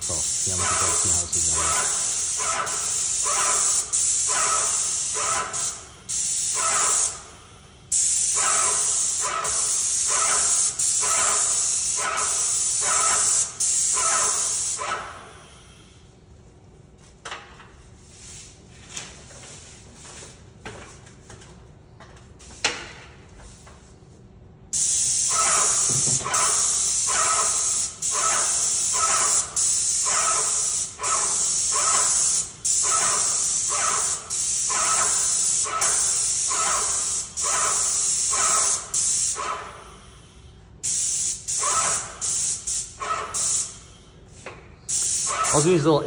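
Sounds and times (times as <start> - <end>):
paint spray gun hissing: 0.0 - 14.9, 24.8 - 40.1, 40.8 - 43.9, 44.9 - 45.8.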